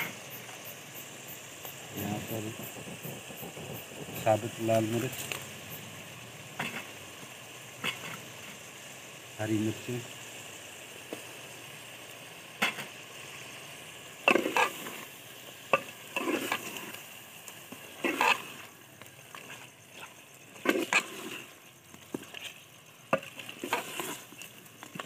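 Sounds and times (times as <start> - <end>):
frying sizzle: 0.0 - 25.0
ladle scraping metal pot: 18.0 - 18.5, 23.2 - 24.3.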